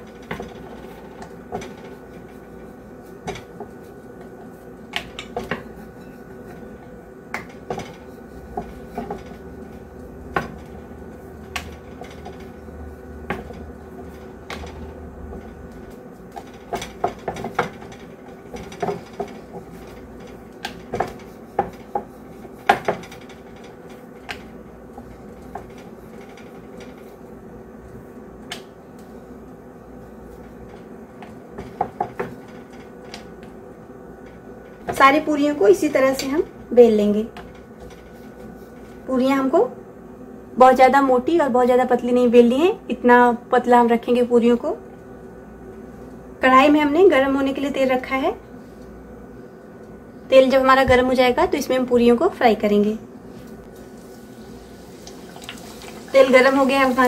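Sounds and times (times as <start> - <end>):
rolling pin knocks and clacks: 0.0 - 2.5, 7.3 - 9.4, 13.2 - 27.0, 30.8 - 33.5
rolling pin rolling dough: 0.0 - 39.9
faint steady hum: 0.0 - 57.0.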